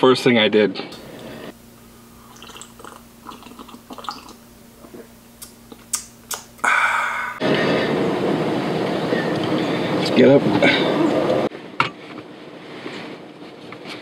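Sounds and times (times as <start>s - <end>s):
slurping coffee: 2.2s - 5.0s.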